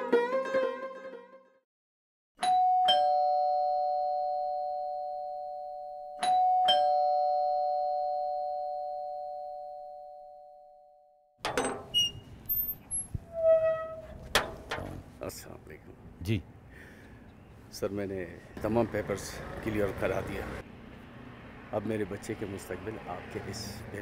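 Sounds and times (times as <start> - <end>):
two-tone doorbell chime: 2.4 - 11.0
sharp knocks and clicks: 11.4 - 11.9, 14.2 - 15.0
outdoor noise: 11.4 - 24.0.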